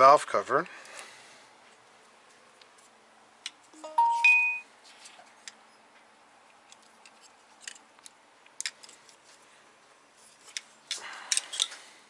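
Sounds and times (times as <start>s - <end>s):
plastic connectors clicking and rattling: 10.5s - 11.8s.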